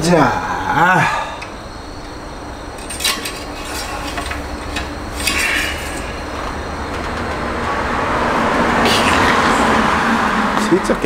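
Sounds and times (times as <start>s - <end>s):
steady low hum: 0.0s - 11.0s
short hiss: 5.2s - 6.2s.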